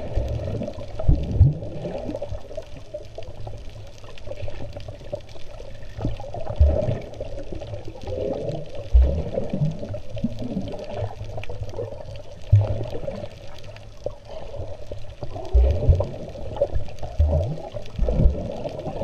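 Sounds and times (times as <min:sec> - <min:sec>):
muffled underwater rush of water: 0:00.0 - 0:19.0
low underwater thumps: 0:15.5 - 0:16.2, 0:17.2 - 0:18.4.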